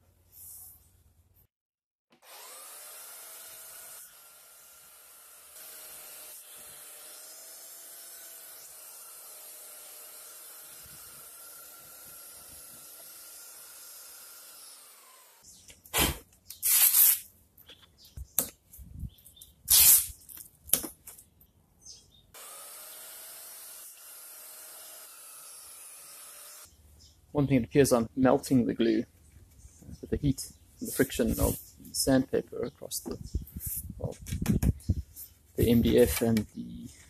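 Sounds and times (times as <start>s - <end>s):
electric belt sander running: 2.2s - 15.4s, 22.4s - 26.7s
masking tape ripping off roll: 15.9s - 17.3s, 19.6s - 20.9s.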